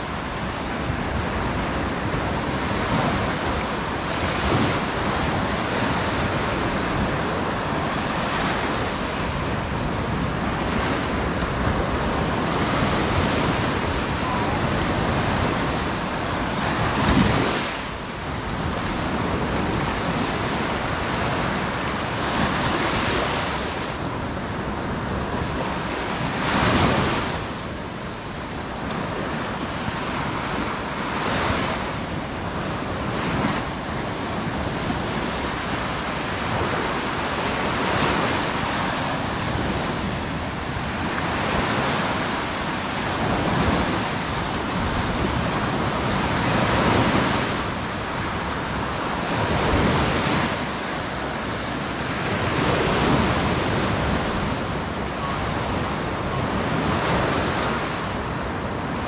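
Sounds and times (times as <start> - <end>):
wave breaking: 0.0 - 32.1
waves rushing onto beach: 0.0 - 59.0.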